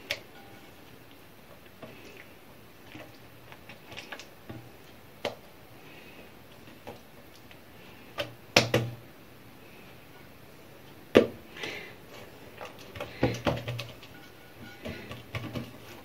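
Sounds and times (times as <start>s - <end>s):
hands slapping dough: 8.1s - 9.0s.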